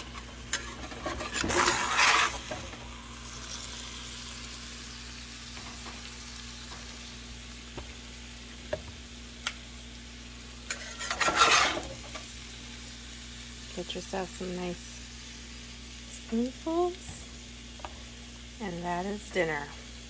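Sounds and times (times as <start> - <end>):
metal spoon scraping a skillet: 0.0 - 2.6, 10.7 - 12.2
food sizzling in a pan: 0.0 - 20.0.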